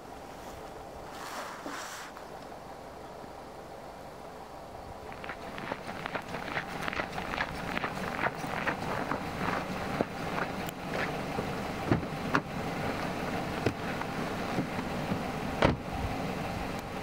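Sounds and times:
steady background hiss: 0.0s - 17.0s
footsteps in snow: 0.3s - 2.3s, 5.1s - 11.2s
knocks and clicks climbing into car: 6.9s - 12.5s, 13.6s - 15.9s
car door thud: 11.9s - 12.5s, 15.6s - 15.9s.

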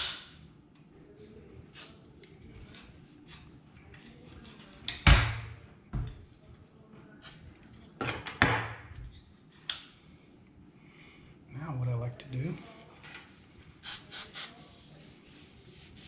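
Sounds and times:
aerosol can spraying: 13.8s - 14.6s.

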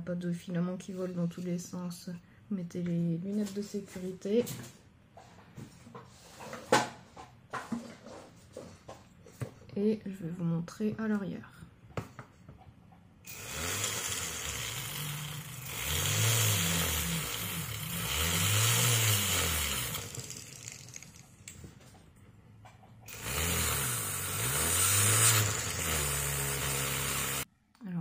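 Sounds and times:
rotary tool spinning bristle disc: 13.3s - 21.4s, 23.1s - 27.5s.

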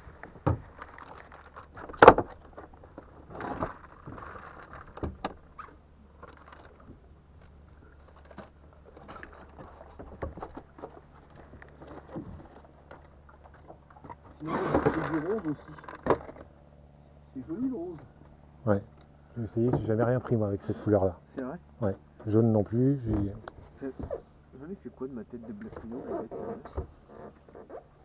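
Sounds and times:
fishing gear clattering in boat: 0.0s - 16.6s.

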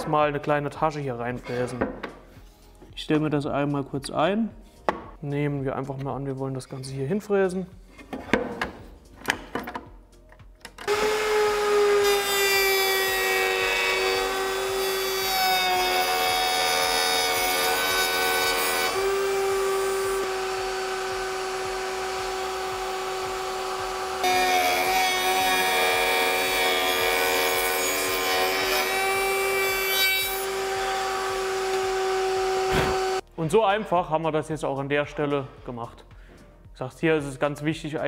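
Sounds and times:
router whining cutting wood: 10.9s - 33.2s.

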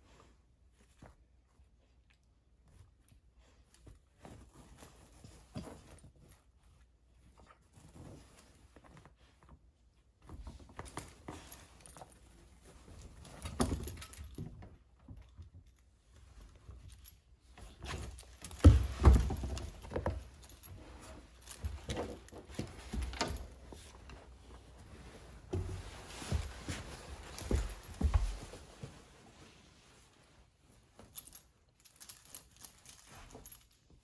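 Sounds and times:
puppy paws thumping and scuffling: 2.6s - 34.0s
metal collar tags jingling: 31.0s - 33.8s.

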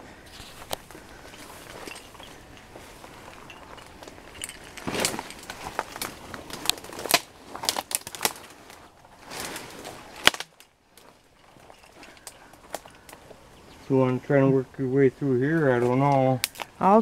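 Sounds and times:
leaves rustling: 0.0s - 17.0s
twigs snapping: 0.3s - 13.4s, 15.9s - 16.8s.

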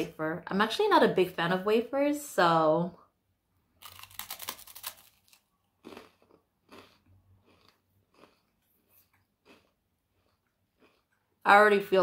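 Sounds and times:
crunching wafer bite: 3.8s - 11.2s
chewing crunches: 3.8s - 11.4s.

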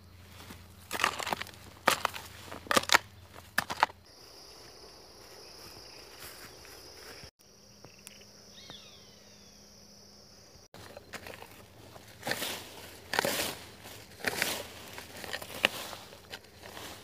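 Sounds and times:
hoe chopping dry soil: 0.0s - 4.1s, 10.8s - 17.0s
high-pitched insect buzz: 4.1s - 10.7s.

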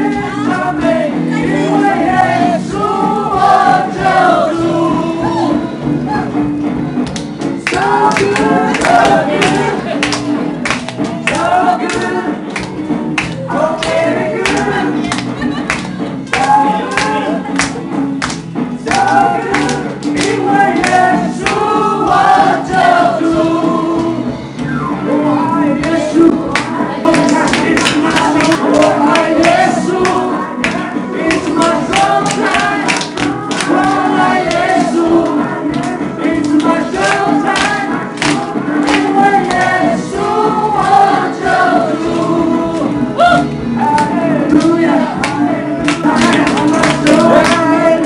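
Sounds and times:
backing music: 0.0s - 48.0s
man and woman singing duet: 25.1s - 48.0s
man singing into a microphone: 44.0s - 48.0s.

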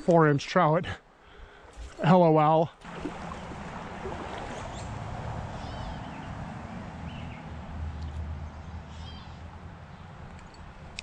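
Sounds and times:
stream water rushing: 1.6s - 7.7s
faint bird chirps: 8.9s - 9.4s.

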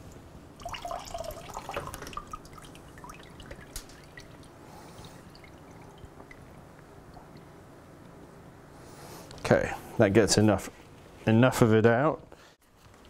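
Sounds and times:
coolant dripping into a bucket: 0.0s - 7.6s.

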